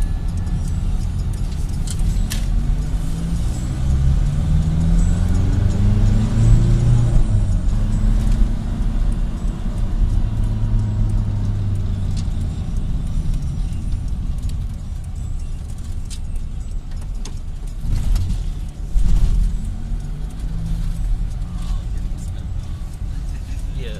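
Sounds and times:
car engine and road hum: 0.0 - 23.9.

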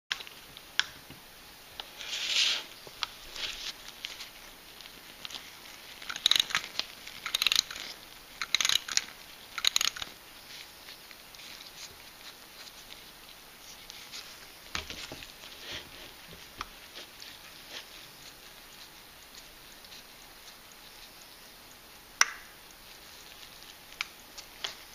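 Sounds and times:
clock winding ratchet clicks: 6.1 - 6.6, 7.2 - 7.8, 8.4 - 10.1.

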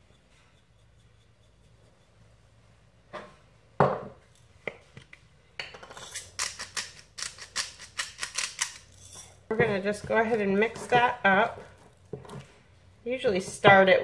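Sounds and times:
pepper grinder gritty clicks: 6.3 - 8.9.

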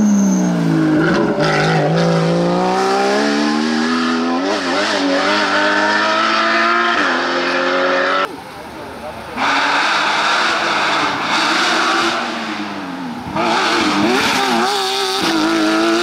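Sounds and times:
car engine at full throttle: 0.0 - 16.0.

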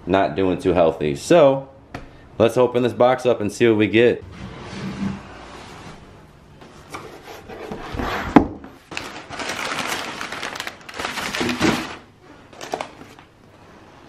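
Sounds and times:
packing paper rustling and crinkling: 8.8 - 13.4.

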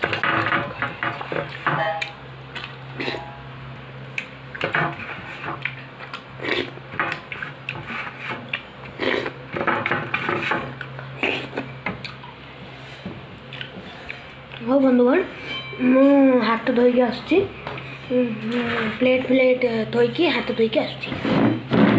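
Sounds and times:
steady low hum: 0.0 - 21.9
mouth eating sounds: 5.6 - 9.5, 10.8 - 12.4.

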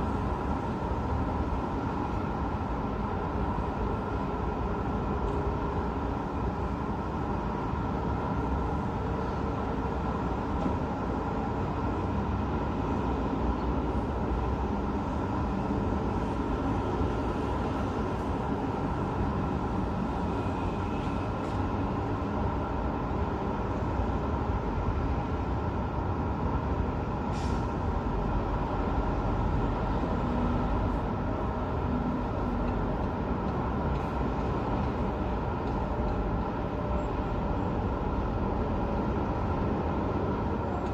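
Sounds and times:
road traffic hum: 0.0 - 40.9
short hiss: 27.3 - 27.8.

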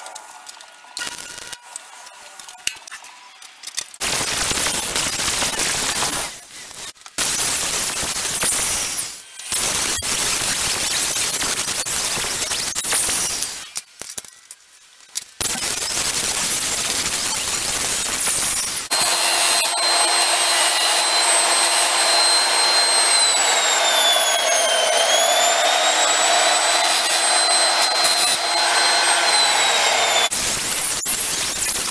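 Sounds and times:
disc grinder grinding steel: 17.4 - 31.8.

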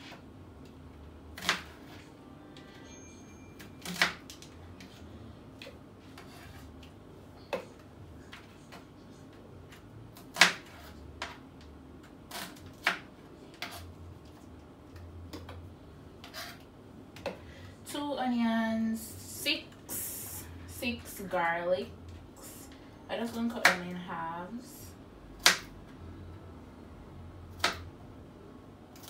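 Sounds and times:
knife chopping on cutting board: 10.3 - 11.4.

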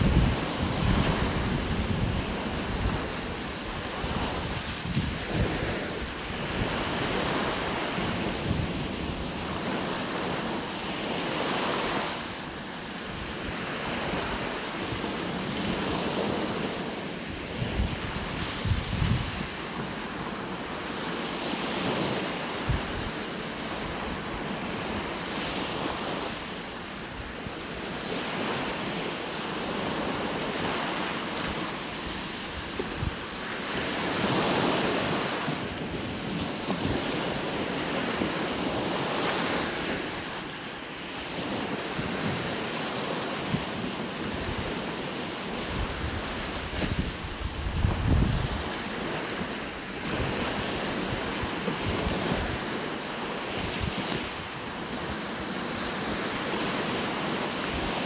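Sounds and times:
wind buffeting microphone: 0.0 - 12.3, 13.0 - 26.4, 27.1 - 40.4, 41.1 - 58.0
waves breaking on beach: 0.0 - 58.0.

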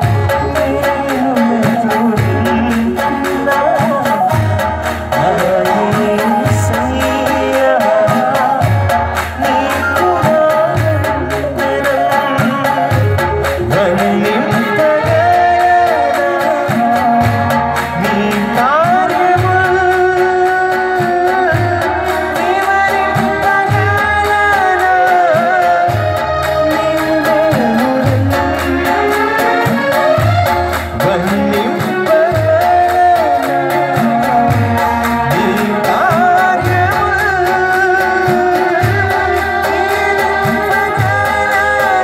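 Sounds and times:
instrumental accompaniment: 0.0 - 42.0
man singing into a microphone: 0.0 - 42.0
steady percussive beat: 0.0 - 42.0.

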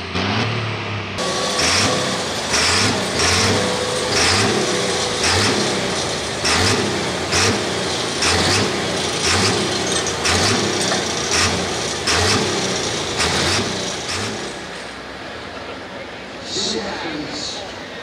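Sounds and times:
diesel engine surging: 0.0 - 18.0.

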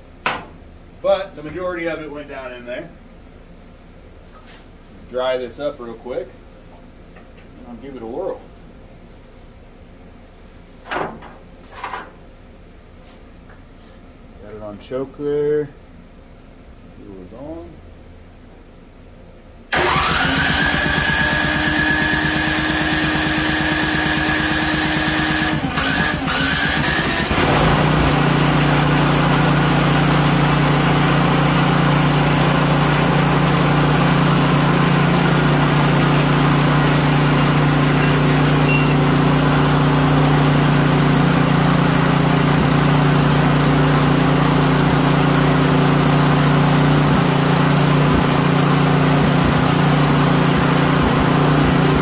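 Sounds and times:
small gasoline engine running: 19.7 - 52.0.

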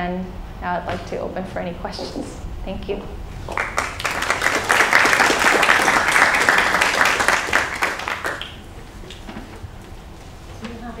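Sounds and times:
audience applauding: 3.4 - 8.8.

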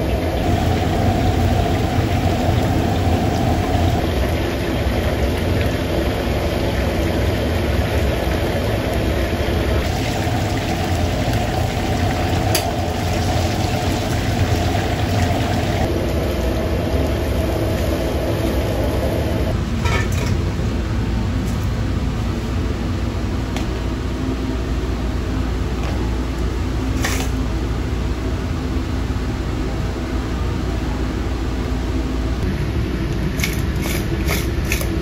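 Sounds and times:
oil sizzling: 0.0 - 16.4
gas burner and extractor roar: 0.0 - 35.0.

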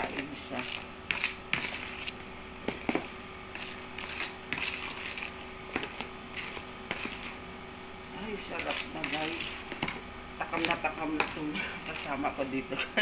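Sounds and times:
ladle scraping in plastic bowl: 3.5 - 7.4.

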